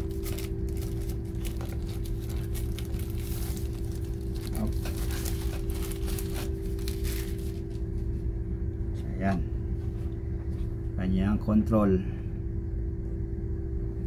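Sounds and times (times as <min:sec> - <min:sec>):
plastic sleeve crinkling: 0:00.0 - 0:08.1
steady low hum: 0:00.0 - 0:14.0.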